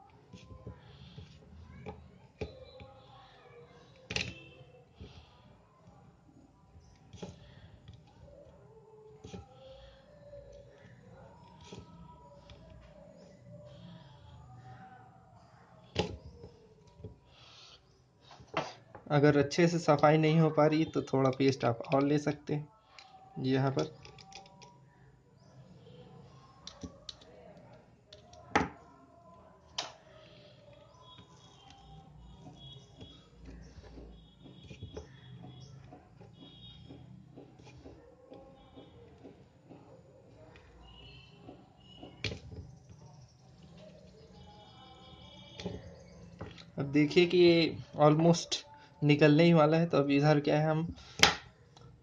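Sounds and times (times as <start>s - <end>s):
faint clicks and scrapes: 0.0s - 19.1s, 21.0s - 46.8s.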